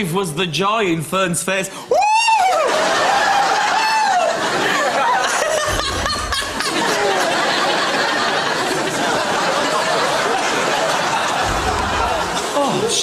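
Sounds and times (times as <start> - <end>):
audience laughing and chattering: 2.6 - 13.0.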